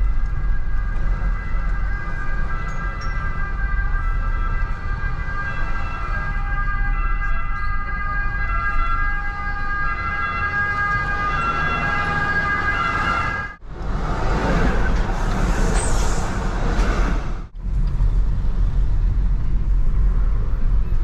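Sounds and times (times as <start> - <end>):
high multi-tone squeal: 0.0 - 9.7
low road rumble: 0.0 - 21.0
tram passing: 0.0 - 21.0.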